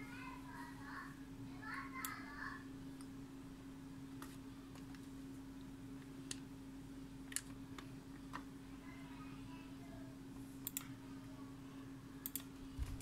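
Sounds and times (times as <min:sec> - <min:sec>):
steady low hum: 0:00.0 - 0:13.0
computer mouse clicking: 0:07.3 - 0:08.5, 0:10.6 - 0:10.9, 0:12.2 - 0:12.5.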